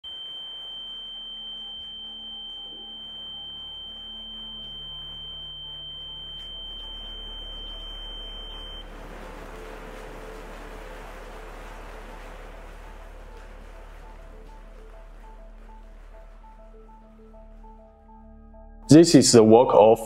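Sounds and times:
high electronic sine tone: 0:00.0 - 0:09.0
hum: 0:00.0 - 0:19.0.

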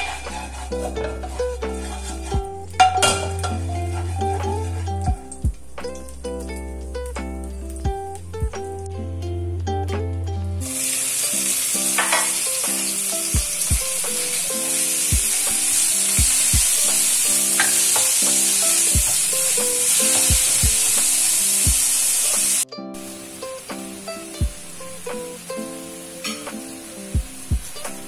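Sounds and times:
ukulele background music: 0:00.0 - 0:28.0
meat sizzling in hot oil: 0:10.6 - 0:23.7.

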